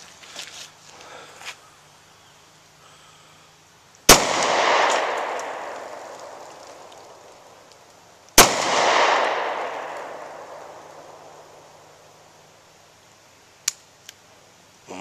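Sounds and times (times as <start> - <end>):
pistol shots with echo: 4.1 - 6.5, 8.4 - 11.9.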